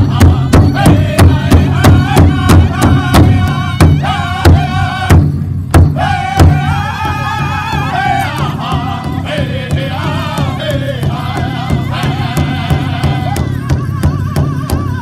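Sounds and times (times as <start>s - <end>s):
group singing in high voices: 0.0s - 14.6s
large hide drum beating: 0.0s - 15.0s.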